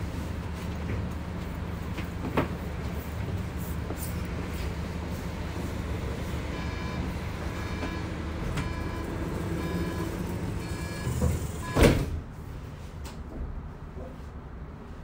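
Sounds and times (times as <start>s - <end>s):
low hum of standing tram: 0.0s - 15.0s
tram door warning beeps: 6.4s - 12.0s
tram doors shutting thud: 7.0s - 12.3s.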